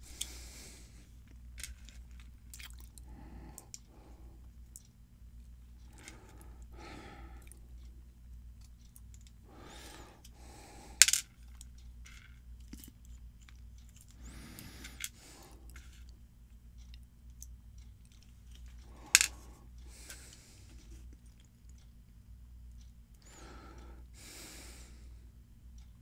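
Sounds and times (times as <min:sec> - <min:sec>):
small metal parts clinking: 0:18.1 - 0:19.5.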